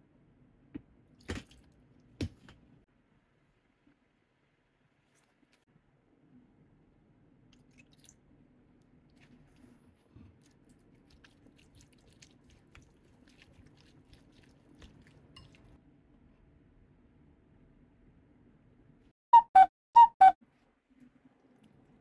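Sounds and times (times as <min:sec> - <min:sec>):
wet squishing of salad: 0:07.5 - 0:15.8.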